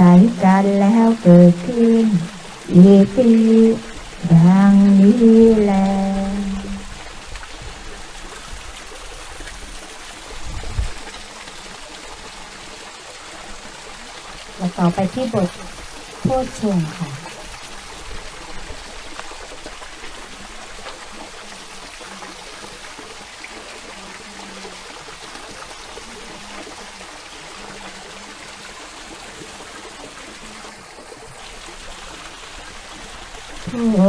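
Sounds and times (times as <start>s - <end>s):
running water: 0.0s - 34.0s.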